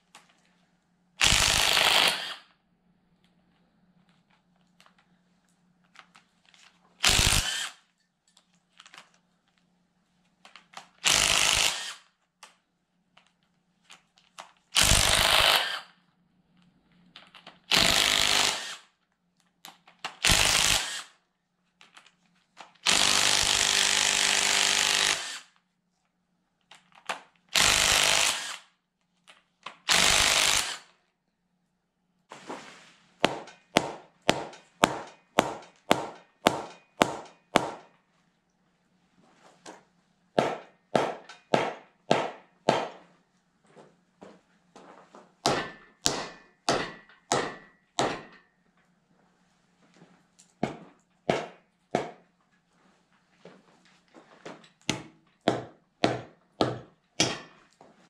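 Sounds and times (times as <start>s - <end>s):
impact wrench bursts: 1.2s - 2.5s, 7.0s - 7.8s, 11.0s - 12.0s, 14.8s - 15.9s, 17.7s - 18.9s, 20.2s - 21.2s, 22.8s - 25.5s, 27.5s - 28.7s, 29.9s - 30.9s
mallet striking metal: 45.5s - 48.4s.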